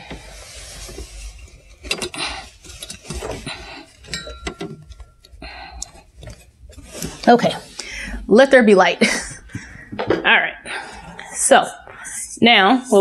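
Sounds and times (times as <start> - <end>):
objects clicking and knocking: 1.8 - 7.3.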